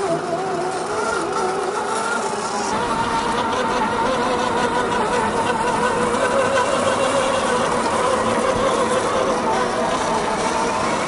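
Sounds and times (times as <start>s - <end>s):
simulated engine sound: 0.0s - 11.0s.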